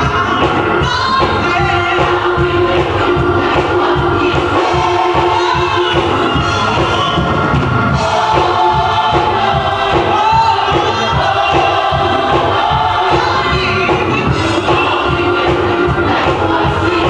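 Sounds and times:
gospel choir singing: 0:00.0 - 0:17.0
steady beat: 0:00.0 - 0:17.0.

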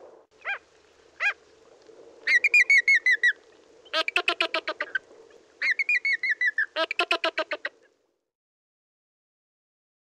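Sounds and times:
flamingo calling: 0:01.2 - 0:01.4, 0:02.2 - 0:07.9.

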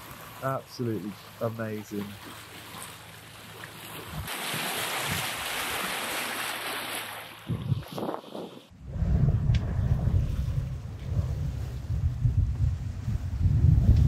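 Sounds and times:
sea water splashing along hull: 0:00.0 - 0:08.8
wind buffeting microphone: 0:07.4 - 0:14.0.

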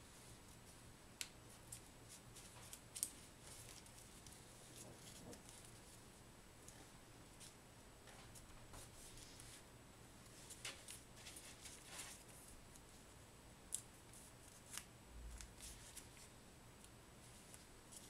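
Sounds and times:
paper crinkling while folded: 0:01.7 - 0:06.0, 0:10.3 - 0:12.9.

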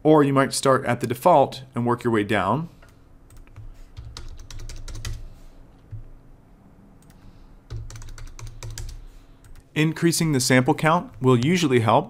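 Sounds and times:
computer keyboard typing: 0:02.8 - 0:05.3, 0:07.0 - 0:09.6.

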